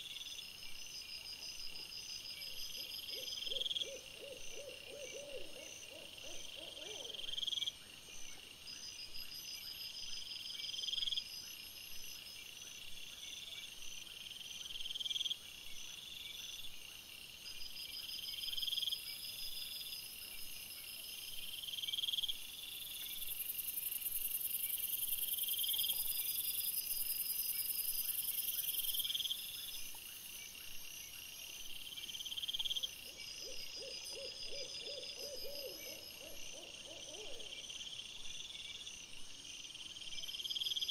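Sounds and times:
high-pitched insect call: 0:39.6 - 0:40.9.

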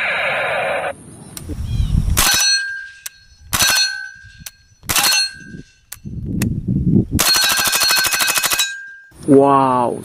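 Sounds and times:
metallic ringing: 0:02.2 - 0:06.2, 0:07.2 - 0:09.2
suppressed gunfire bursts: 0:03.5 - 0:04.1, 0:04.9 - 0:05.4, 0:07.2 - 0:08.7.

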